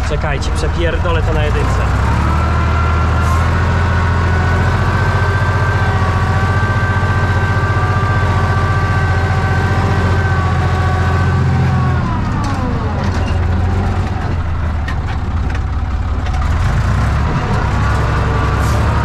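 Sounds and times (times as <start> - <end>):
engine whine: 0.0 - 19.0
tractor diesel engine working hard: 0.0 - 19.0.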